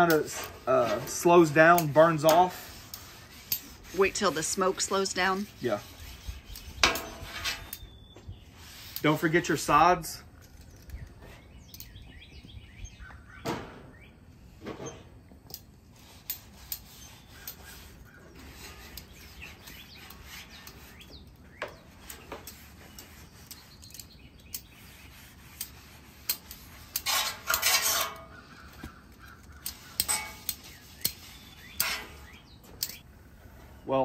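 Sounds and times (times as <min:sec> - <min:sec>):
brushing rush: 0:00.0 - 0:07.8, 0:08.4 - 0:10.2, 0:15.9 - 0:21.1, 0:21.8 - 0:32.4
metal tongs scraping on griddle: 0:00.0 - 0:07.9, 0:15.9 - 0:21.2, 0:21.8 - 0:33.0.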